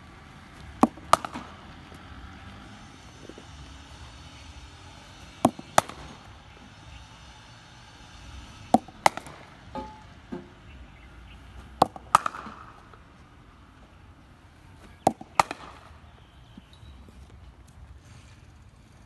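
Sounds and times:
cricket bat hitting ball: 0:00.6 - 0:01.8, 0:05.2 - 0:06.4, 0:08.6 - 0:10.6, 0:11.6 - 0:13.0, 0:14.9 - 0:16.2.

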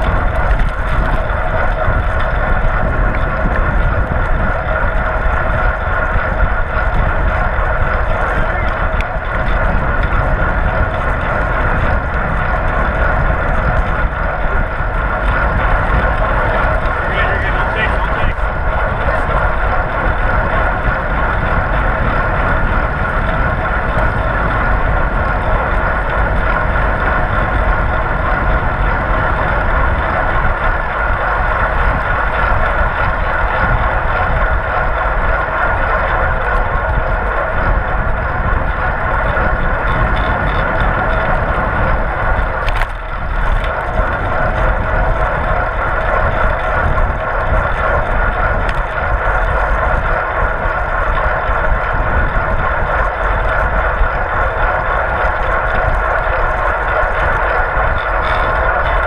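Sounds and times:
tyre and road noise: 0:00.0 - 0:59.0
wind rushing over microphone: 0:00.0 - 0:59.0.

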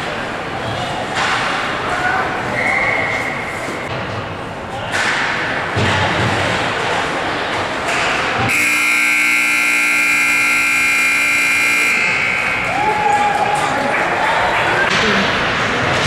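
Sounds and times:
steady background noise: 0:00.0 - 0:16.0
hockey rink horn blast: 0:08.4 - 0:12.7.

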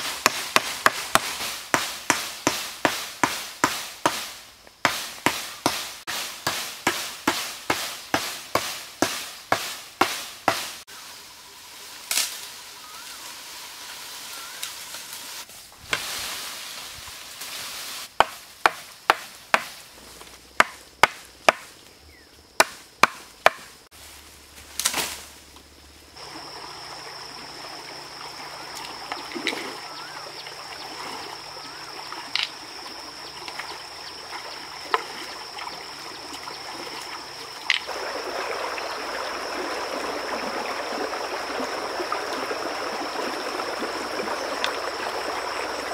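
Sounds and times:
blade chopping bamboo: 0:00.0 - 0:10.8, 0:18.2 - 0:19.8, 0:20.6 - 0:21.7, 0:22.6 - 0:23.7
stream running over rocks: 0:26.1 - 0:45.9.

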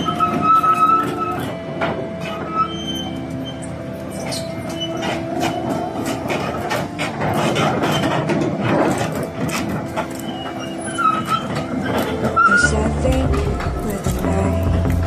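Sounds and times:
excavator engine running: 0:00.0 - 0:15.0
metallic clanks: 0:00.0 - 0:15.0
squealing tones: 0:00.0 - 0:15.0.

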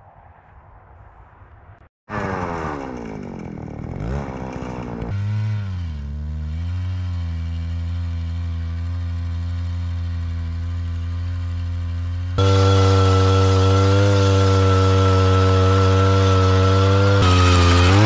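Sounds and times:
ice auger motor drilling: 0:02.1 - 0:06.8, 0:12.4 - 0:18.0.

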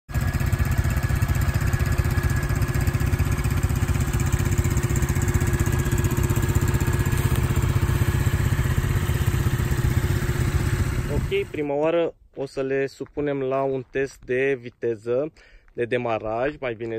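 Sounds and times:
small engines idling: 0:00.1 - 0:11.6.

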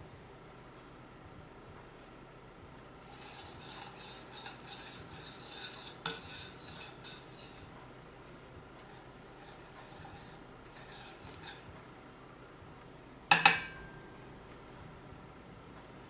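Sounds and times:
metal spoon scraping skillet: 0:03.0 - 0:07.7, 0:08.8 - 0:11.7
spoon clinking on pan: 0:13.3 - 0:14.0.

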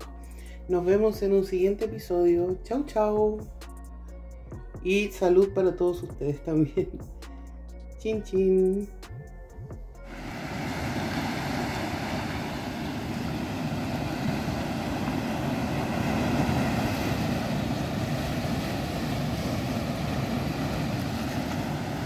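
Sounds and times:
ocean waves washing over rocks: 0:10.1 - 0:22.0.

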